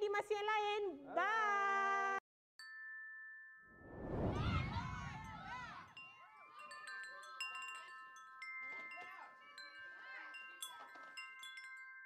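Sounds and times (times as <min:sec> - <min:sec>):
chimes and bell tones jingle: 0:02.6 - 0:12.0.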